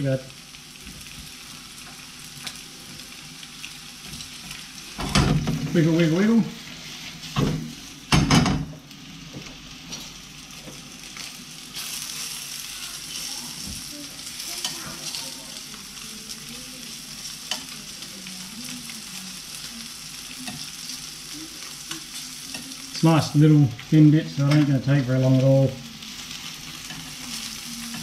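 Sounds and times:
fish sizzling in oil: 0.0 - 28.0
pan clattering on burner: 5.0 - 5.8, 7.2 - 8.8
metal tongs clicking on pan: 14.6 - 15.2, 17.4 - 17.8.

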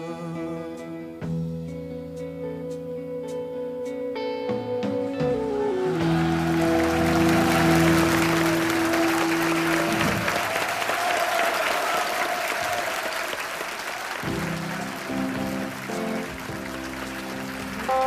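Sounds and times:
band's held chord on guitars and keyboard: 3.6 - 10.7, 14.2 - 18.0
audience applause: 5.6 - 18.0.

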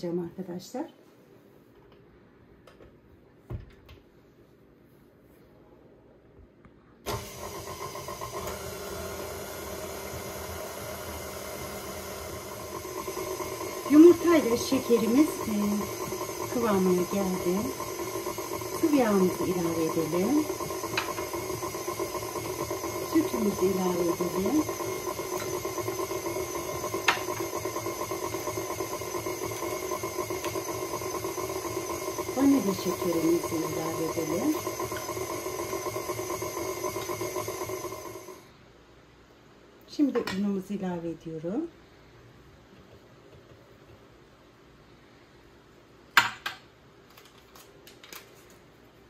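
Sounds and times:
stand mixer switch: 7.1 - 38.3
mixer motor running: 7.1 - 38.5.

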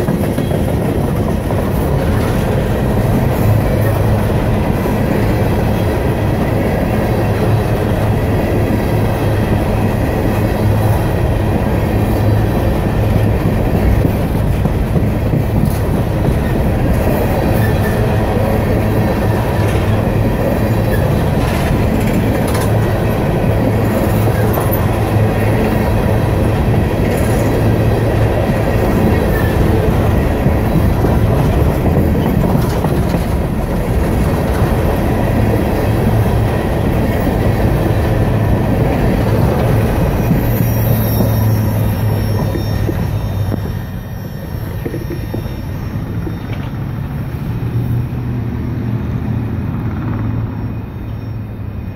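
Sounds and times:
train cars clanking: 0.0 - 47.8
train wheels rumbling on rail: 0.0 - 51.9
wheel squeals: 11.9 - 47.0.

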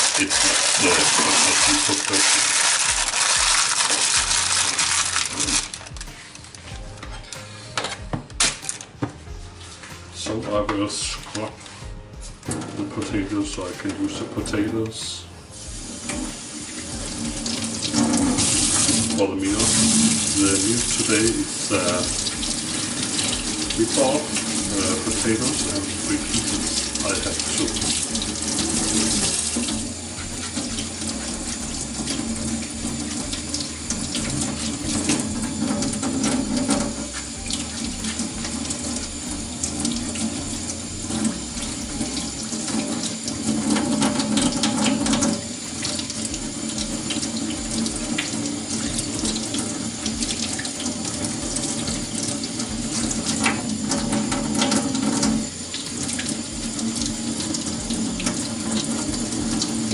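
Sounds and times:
potatoes scrubbed under water: 0.0 - 6.4.

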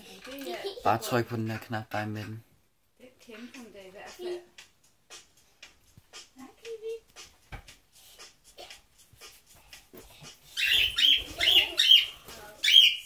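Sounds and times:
parrot shrill calls: 10.6 - 13.0.

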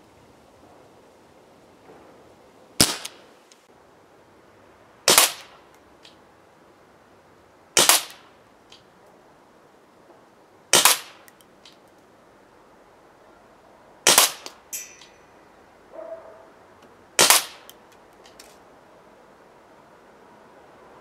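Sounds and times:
airsoft revolver shots: 2.8 - 3.2, 5.1 - 5.6, 7.8 - 8.3, 10.7 - 11.3, 14.0 - 15.1, 17.2 - 17.8.

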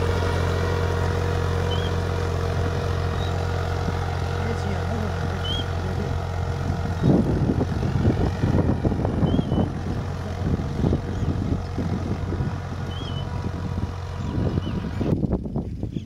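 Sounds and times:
tractor diesel engine running: 0.0 - 16.0
bird chirping: 1.7 - 2.0, 12.9 - 13.3
wind buffeting microphone: 6.2 - 16.0.

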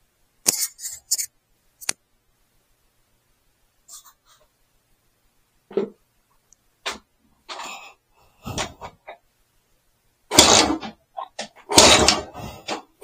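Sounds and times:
motorcycle engine firing bursts: 10.3 - 10.8, 11.7 - 12.3
kickstart clunks: 10.3 - 10.9, 11.7 - 12.8.

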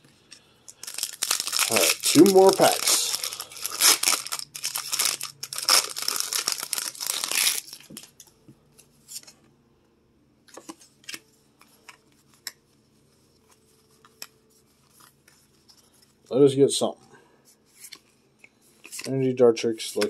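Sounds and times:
foil pack tearing and crinkling: 0.8 - 8.1.

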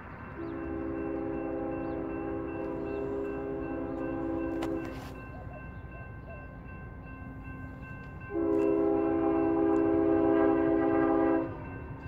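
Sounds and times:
locomotive horn blast: 0.4 - 5.2, 8.3 - 11.7.

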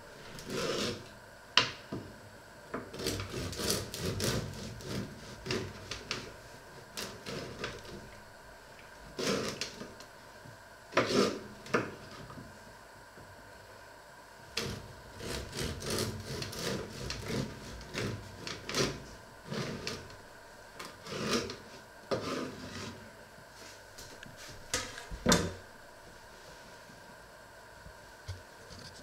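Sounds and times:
knife sawing through bread: 0.4 - 1.0, 2.9 - 6.0, 9.2 - 9.6, 11.0 - 11.5, 14.6 - 20.0, 21.0 - 23.0.

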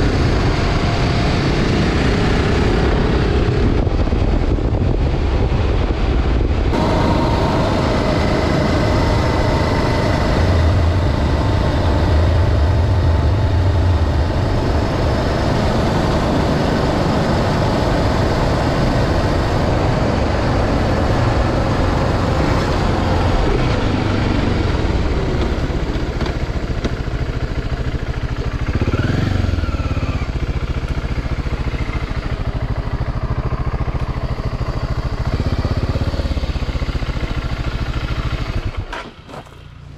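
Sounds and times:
steady rushing noise: 0.0 - 29.6
motorcycle engine running: 0.0 - 39.9.

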